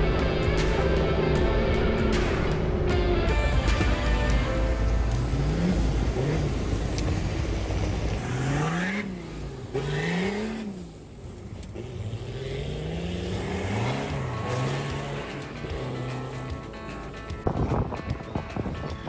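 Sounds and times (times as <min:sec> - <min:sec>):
engine revving: 0:00.0 - 0:17.6
wind noise: 0:17.4 - 0:19.0.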